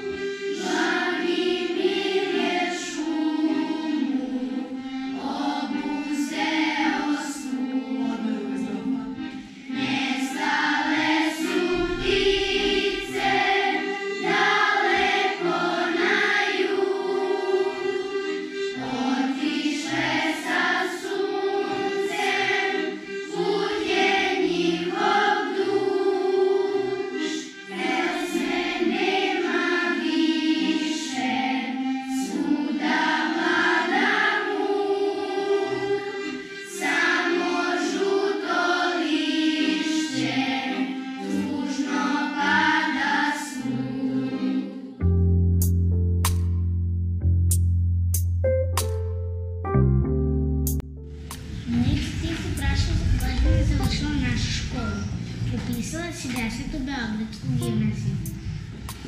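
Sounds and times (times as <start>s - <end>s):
children's choir singing: 0.0s - 45.1s, 51.7s - 59.0s
accordion: 0.0s - 46.7s.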